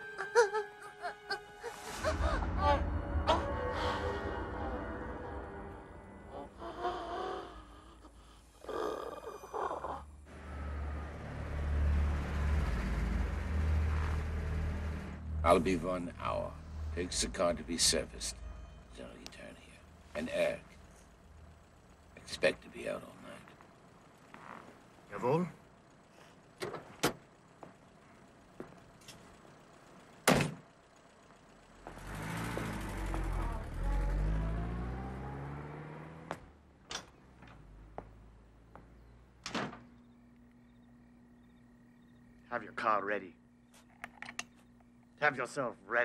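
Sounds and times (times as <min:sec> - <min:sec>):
car engine rumbling: 0:10.0 - 0:45.3.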